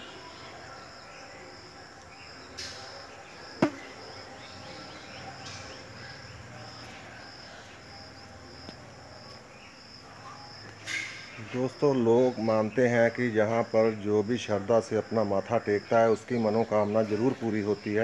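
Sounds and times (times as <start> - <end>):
insects chirping in pulsing trill: 0.0 - 18.0
sharp knock: 3.6 - 3.9.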